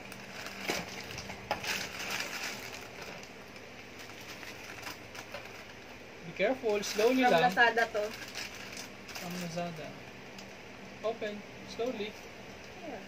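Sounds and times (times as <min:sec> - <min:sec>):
plastic mailer crinkling: 0:00.0 - 0:06.0, 0:06.6 - 0:09.8.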